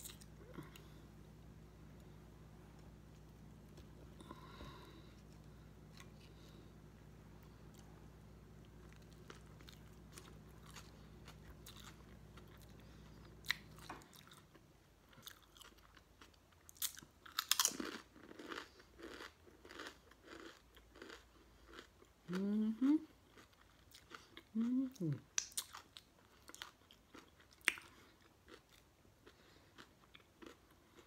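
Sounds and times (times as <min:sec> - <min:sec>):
moist chewing of sandwich: 0:00.0 - 0:22.4, 0:23.2 - 0:24.8, 0:25.6 - 0:31.0
potato chip crunching: 0:15.1 - 0:22.0.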